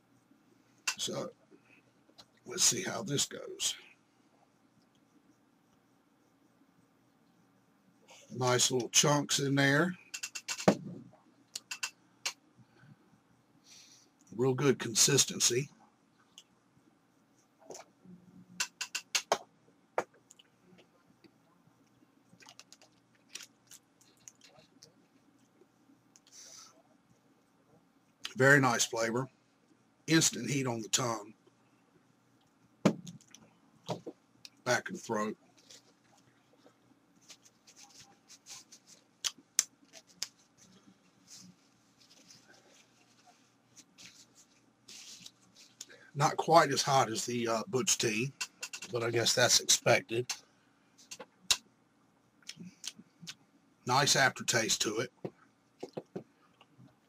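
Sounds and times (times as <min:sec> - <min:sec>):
soft hissing breaths: 0:00.0 - 0:10.4, 0:11.6 - 0:16.4, 0:23.8 - 0:32.4, 0:34.5 - 0:51.2
sharp clicks: 0:11.6 - 0:12.4, 0:18.6 - 0:19.4.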